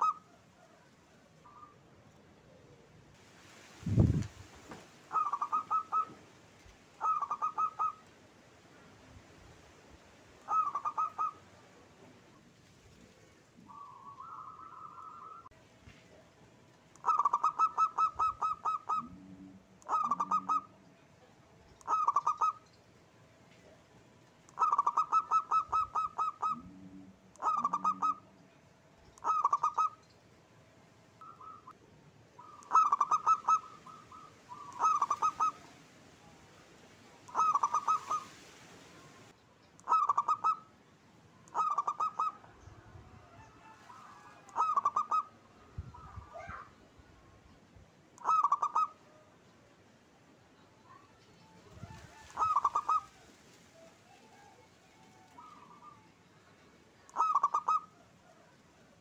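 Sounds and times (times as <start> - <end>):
dove cooing: 0.0 - 3.0, 5.1 - 6.3, 7.0 - 8.1, 10.4 - 12.2, 13.1 - 15.5, 17.0 - 20.8, 21.8 - 22.7, 24.5 - 28.4, 29.2 - 30.0, 31.2 - 31.8, 32.4 - 35.8, 37.2 - 38.4, 39.8 - 40.7, 41.5 - 46.7, 48.2 - 49.2, 51.6 - 56.2, 57.1 - 58.9.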